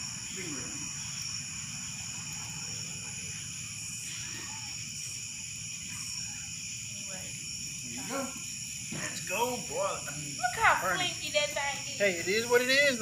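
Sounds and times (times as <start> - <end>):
crickets trilling: 0.0 - 13.0
rasping insect call: 0.0 - 13.0.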